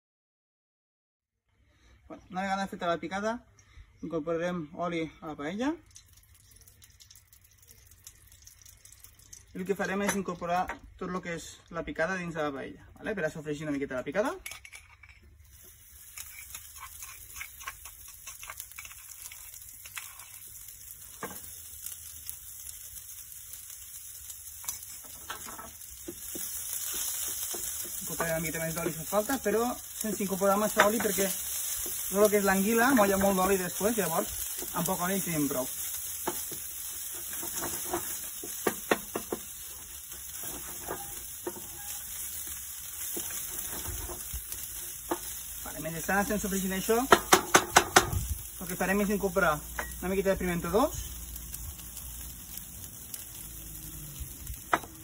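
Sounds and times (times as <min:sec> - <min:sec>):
food sizzling in hot oil: 0:05.4 - 0:11.0, 0:14.1 - 0:55.0
metal spoon scraping a mortar: 0:16.0 - 0:20.4, 0:40.2 - 0:42.2
wooden spatula scraping a pan: 0:36.2 - 0:45.4.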